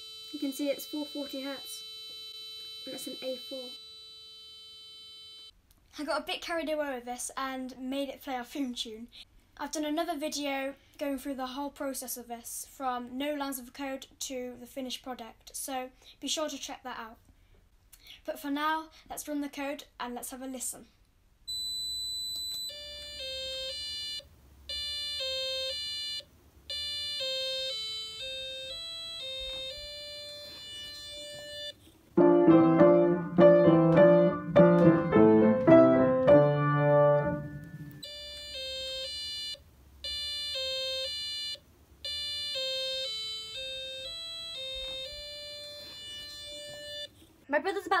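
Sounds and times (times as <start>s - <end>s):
acoustic piano: 32.2s - 38.0s.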